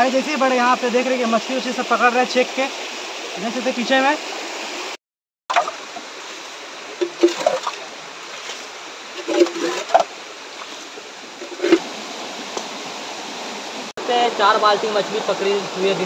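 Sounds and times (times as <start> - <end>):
stream running over rocks: 0.0 - 16.0
hands splashing in water: 5.5 - 6.0, 7.0 - 11.9.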